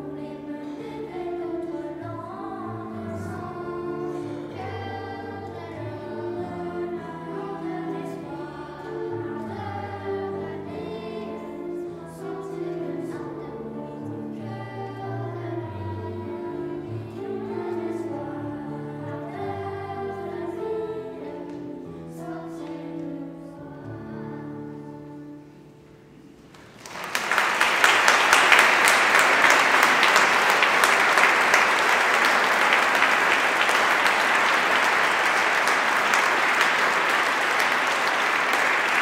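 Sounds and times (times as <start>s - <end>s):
children's choir singing: 0.0s - 39.0s
audience applause: 26.6s - 39.0s.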